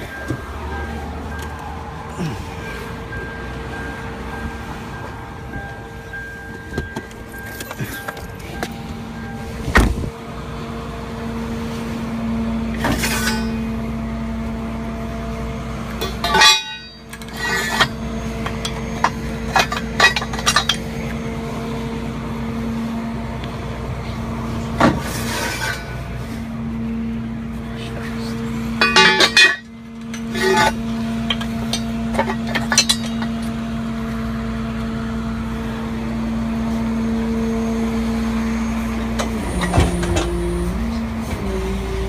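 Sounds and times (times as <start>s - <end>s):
clinks and knocks: 6.5s - 8.8s, 12.8s - 13.7s, 16.0s - 21.0s, 28.8s - 33.6s.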